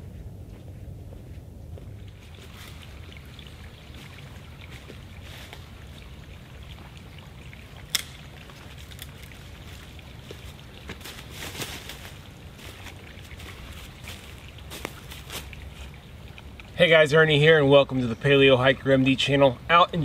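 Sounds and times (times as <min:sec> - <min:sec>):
low rumble: 0:00.0 - 0:03.7
footsteps crunching dry leaves: 0:09.6 - 0:16.0.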